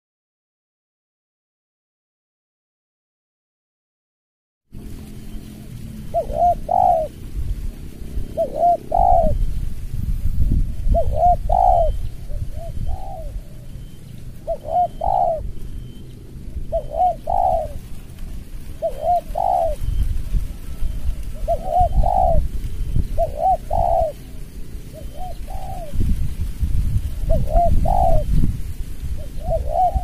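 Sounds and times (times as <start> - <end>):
low rumble: 4.7 - 30.0
dove cooing: 4.8 - 9.8, 10.6 - 26.2, 26.8 - 28.4, 29.0 - 30.0.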